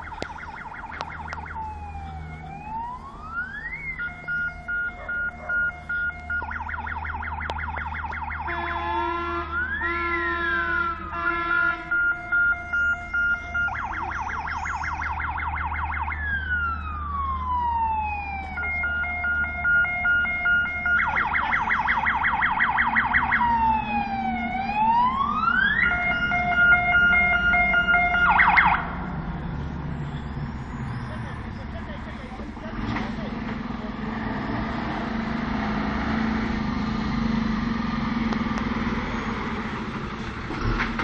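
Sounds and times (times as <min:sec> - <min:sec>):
fire engine electronic siren: 0:00.0 - 0:33.0, 0:34.4 - 0:41.0
low engine rumble: 0:00.0 - 0:41.0.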